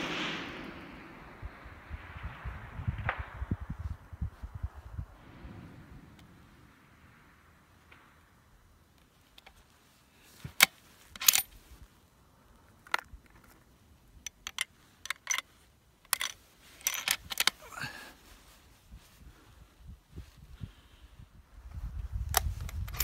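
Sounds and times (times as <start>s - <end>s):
rifle bolt metallic clicks: 10.5s - 11.6s, 14.2s - 17.6s.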